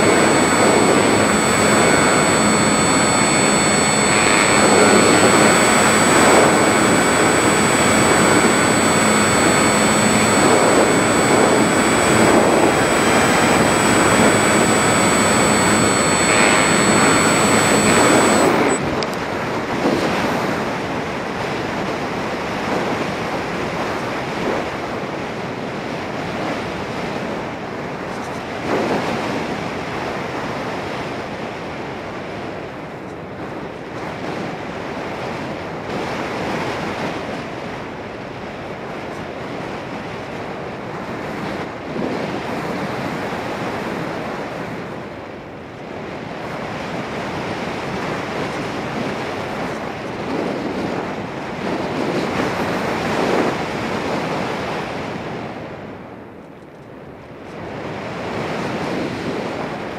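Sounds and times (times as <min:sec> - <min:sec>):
electric motor whining: 0:00.0 - 0:19.0.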